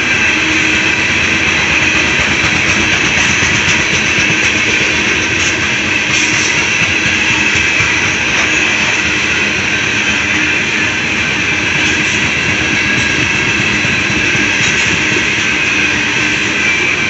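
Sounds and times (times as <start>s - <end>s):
steel train wheels on rails: 0.0s - 17.0s.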